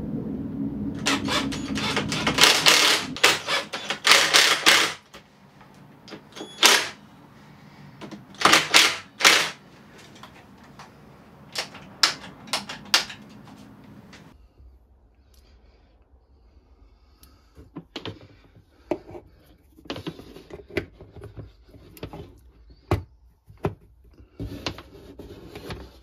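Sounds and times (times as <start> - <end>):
cordless drill motor whirring: 1.0 - 5.2, 6.1 - 7.0, 8.3 - 10.3
sharp clicks and knocks: 1.0 - 7.0, 8.0 - 14.3.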